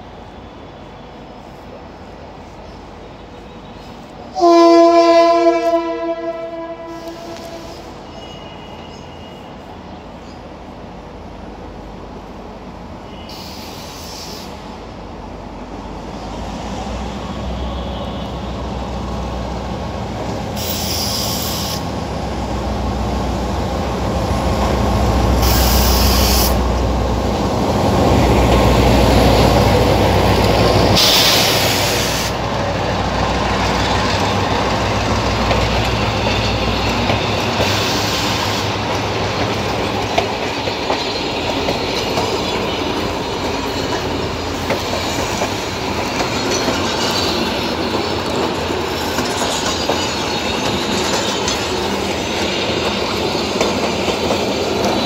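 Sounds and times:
brief high hisses: 13.2 - 14.7, 20.6 - 21.9, 25.4 - 26.6, 31.0 - 32.4
train wheels clickety-clack: 24.4 - 32.4, 33.0 - 55.0.

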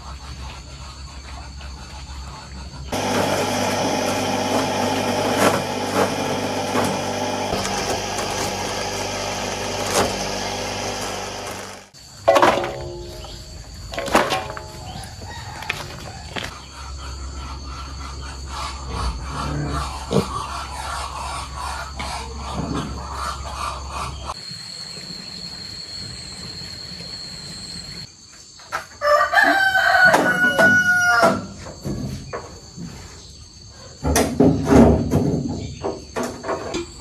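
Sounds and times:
farmyard background noise: 0.0 - 37.0
rooster crowing: 14.8 - 16.5, 29.0 - 31.6.

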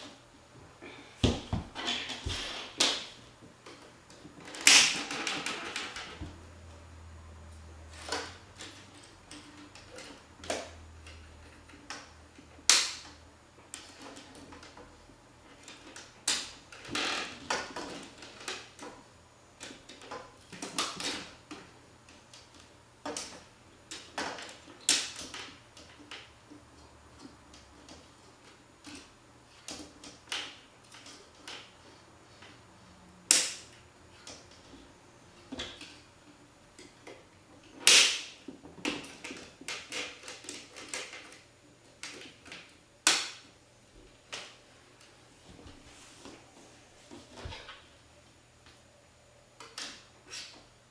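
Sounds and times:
plastic parts clicking and rattling: 1.7 - 6.3, 7.9 - 19.0, 19.6 - 32.6, 36.8 - 43.5
sharp plastic snaps: 8.0 - 14.8, 33.3 - 34.6, 36.8 - 41.4, 42.0 - 43.5.

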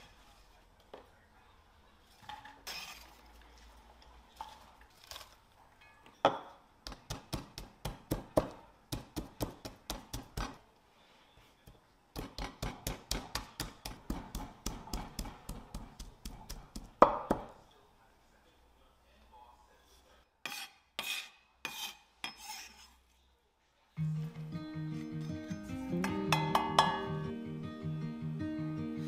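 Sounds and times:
kitchen utensils knocking: 26.0 - 27.2.

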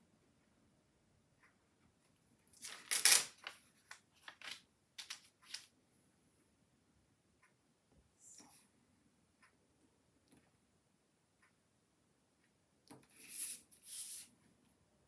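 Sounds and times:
paper rustling: 2.6 - 5.7.

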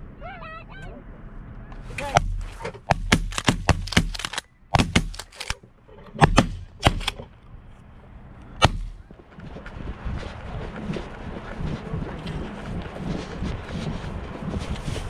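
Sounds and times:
shotgun volley: 2.0 - 5.5, 6.2 - 7.2, 8.6 - 9.1.

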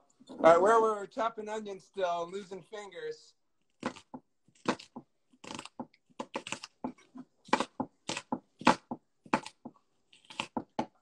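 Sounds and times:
knife chopping onion on wood: 3.8 - 11.0.

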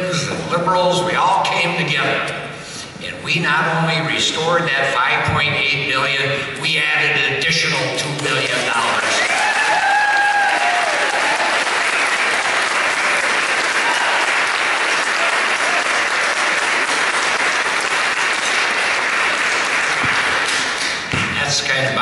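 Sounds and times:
audience applauding: 8.4 - 21.1.

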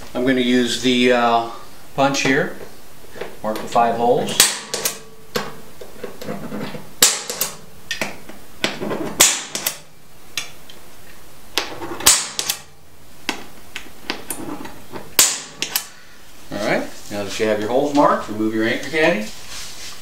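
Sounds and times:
punch snapping onto metal plate: 4.3 - 5.6, 7.0 - 9.8, 11.6 - 12.7, 15.0 - 15.9.

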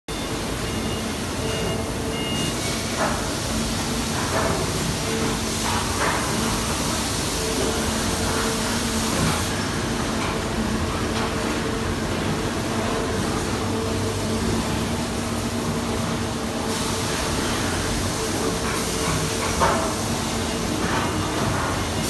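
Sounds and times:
machines humming: 0.1 - 22.0.

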